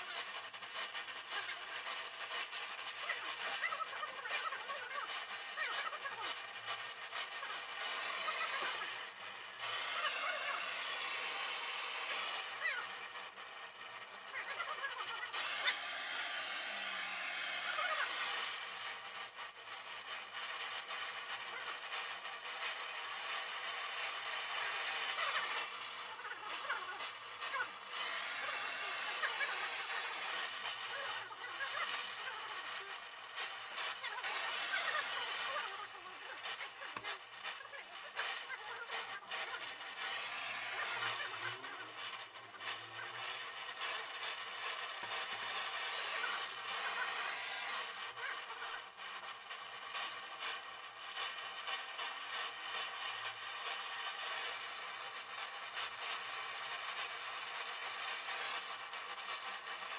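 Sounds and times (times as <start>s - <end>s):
sharp crackles: 0.0s - 59.9s
welding torch flame hissing: 0.0s - 59.9s.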